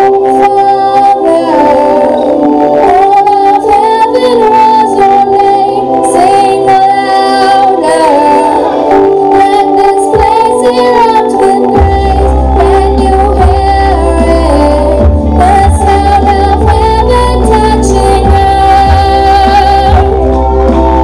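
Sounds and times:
girl singing into microphone: 0:00.0 - 0:21.0
instrumental backing music: 0:00.0 - 0:21.0.

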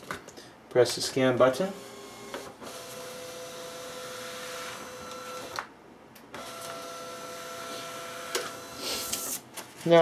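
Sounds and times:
scanner motor whine: 0:01.8 - 0:05.6, 0:06.4 - 0:09.3.

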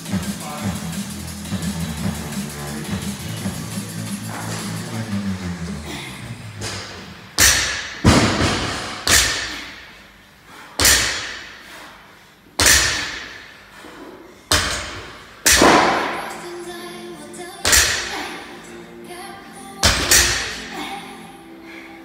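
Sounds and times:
barbells thudding on rubber floor: 0:06.6 - 0:09.8, 0:10.8 - 0:11.6, 0:12.6 - 0:13.5, 0:14.5 - 0:16.3, 0:17.6 - 0:18.1, 0:19.8 - 0:20.6.

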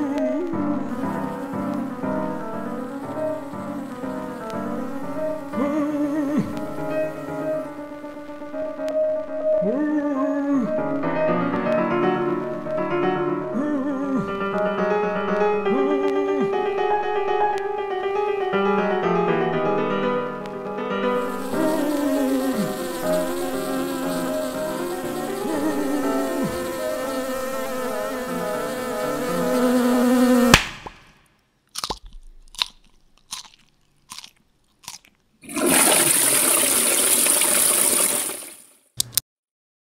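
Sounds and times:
insect-like buzzing: 0:00.0 - 0:08.8, 0:21.1 - 0:31.2
music: 0:00.0 - 0:30.5
sharp crack: 0:30.5 - 0:35.1
toilet flushing: 0:35.4 - 0:38.8.

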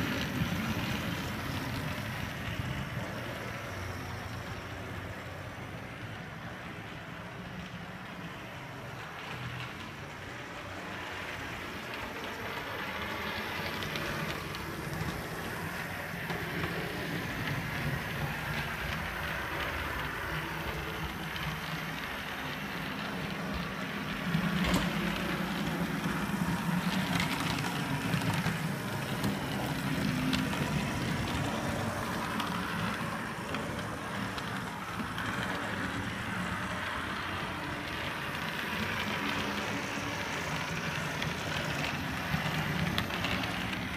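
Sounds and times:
model train motor whirring: 0:09.0 - 0:43.9.

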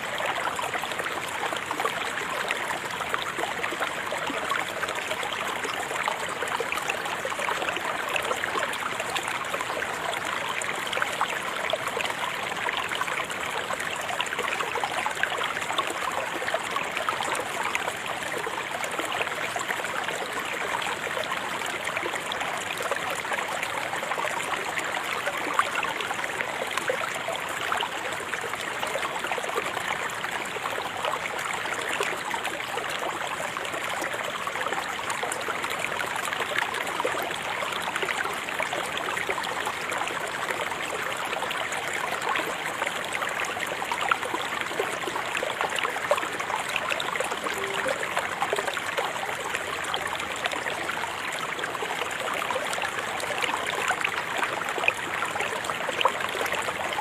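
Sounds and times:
river water babbling: 0:00.0 - 0:57.0.

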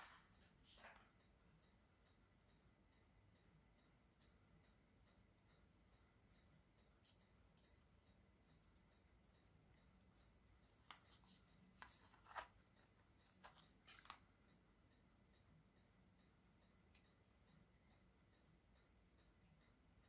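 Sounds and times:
faint even ticking: 0:00.0 - 0:20.0
handling clicks and scrapes: 0:10.9 - 0:12.6.

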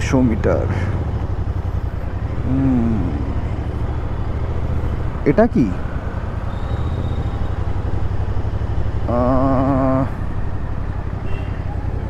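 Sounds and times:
motorcycle engine running: 0:00.0 - 0:12.0
road rumble in traffic: 0:00.0 - 0:12.0
vehicle horn: 0:11.2 - 0:11.8.

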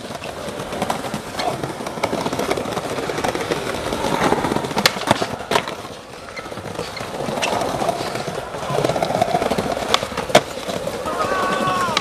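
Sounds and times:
skateboard clacks: 0:00.0 - 0:12.0
skateboard wheels rolling on stone: 0:00.0 - 0:12.0.

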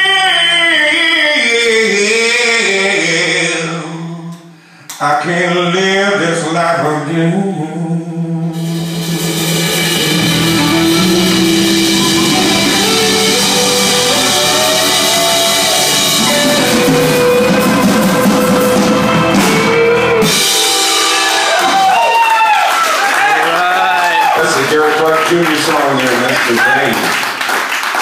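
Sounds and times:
live rock band playing: 0:08.4 - 0:23.7
drum kit: 0:08.4 - 0:24.8.

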